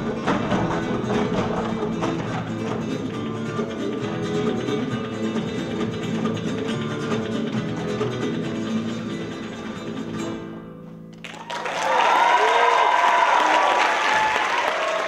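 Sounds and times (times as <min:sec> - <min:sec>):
flamenco guitar music: 0:00.0 - 0:11.6
audience applause: 0:11.2 - 0:15.0
whooping cheers: 0:11.3 - 0:15.0.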